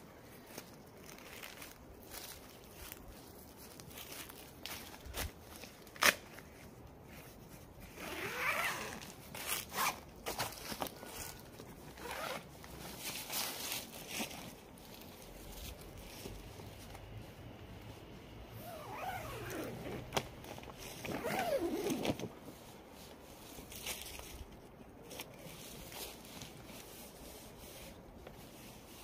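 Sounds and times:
footsteps on dry leaves: 0:00.1 - 0:07.6, 0:09.0 - 0:17.3.

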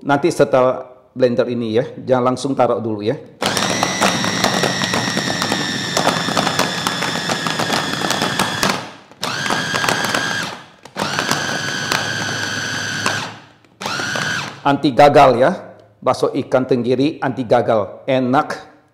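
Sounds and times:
electric food chopper whine: 0:03.4 - 0:14.6.

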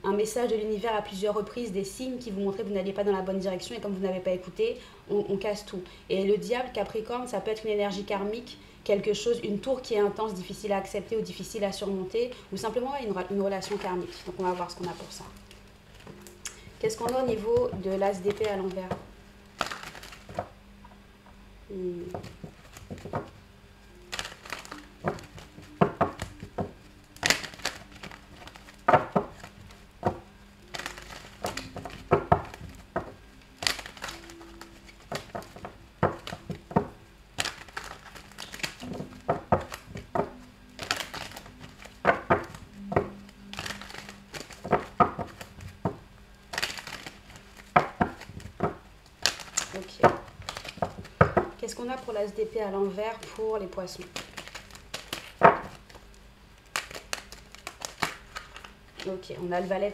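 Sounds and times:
cards being shuffled: 0:12.7 - 0:20.6, 0:21.9 - 0:52.2, 0:52.9 - 0:59.8.

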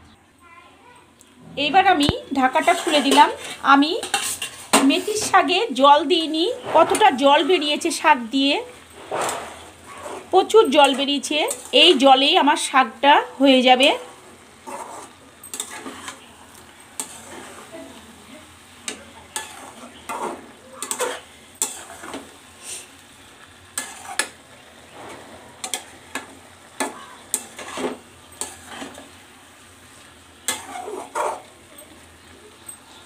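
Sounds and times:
greens sizzling: 0:00.0 - 0:33.0
metal spatula scraping a pan: 0:02.1 - 0:08.0, 0:08.6 - 0:12.7, 0:13.3 - 0:16.3, 0:17.0 - 0:18.0, 0:18.9 - 0:29.2, 0:30.4 - 0:31.6.

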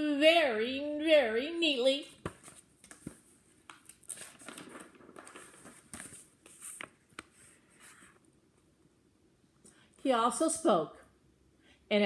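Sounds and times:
paper pages rustling: 0:02.2 - 0:08.2.

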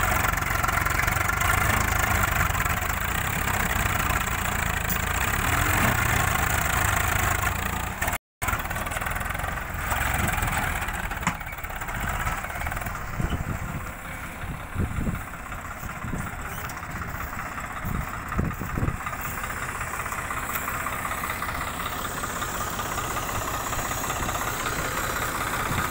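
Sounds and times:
tractor diesel engine under load: 0:00.0 - 0:25.9
dull low thumps: 0:12.8 - 0:19.6.

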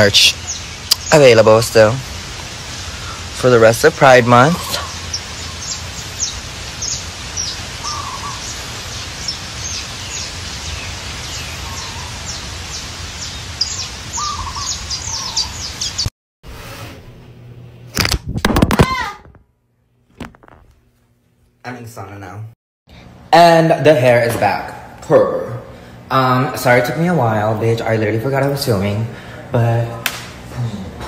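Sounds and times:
birds chirping: 0:00.0 - 0:16.1
lower bird call: 0:04.7 - 0:16.1.

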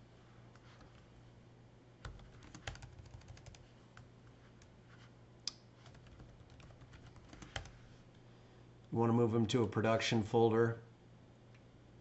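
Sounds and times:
typing on a keyboard: 0:02.0 - 0:03.6, 0:05.8 - 0:07.8.

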